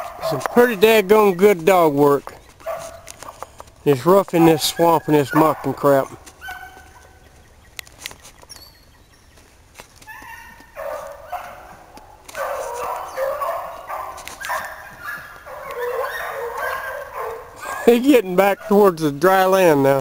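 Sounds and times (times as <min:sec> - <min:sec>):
hounds baying: 0:00.0 - 0:07.7, 0:10.0 - 0:20.0.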